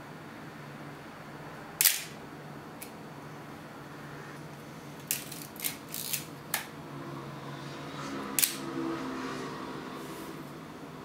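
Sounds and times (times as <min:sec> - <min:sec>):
camera shutter firing: 0:01.8 - 0:02.2.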